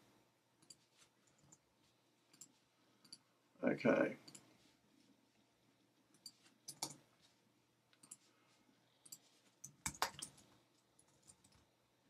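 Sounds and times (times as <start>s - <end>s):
computer mouse clicks: 0.6s - 1.6s, 2.3s - 3.2s, 4.2s - 4.5s, 6.1s - 7.0s, 7.9s - 8.3s, 9.0s - 11.6s.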